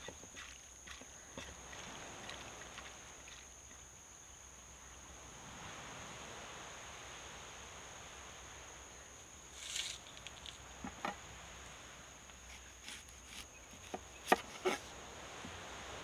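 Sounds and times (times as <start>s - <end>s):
insects droning: 0.0s - 16.0s
knife chopping on wooden board: 12.8s - 14.8s.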